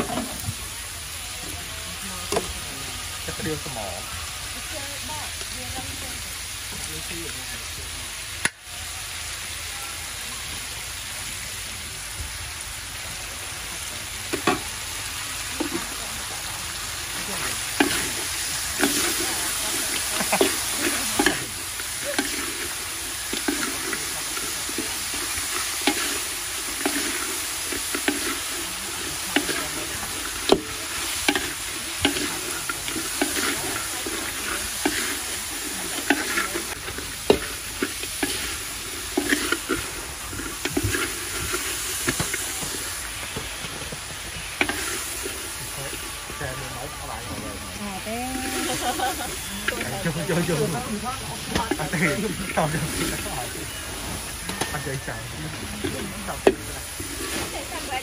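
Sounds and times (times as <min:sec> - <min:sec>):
crab sizzling in a wok: 0:00.0 - 0:58.0
metal spatula scraping wok: 0:16.8 - 0:43.3, 0:44.4 - 0:46.2, 0:48.5 - 0:58.0.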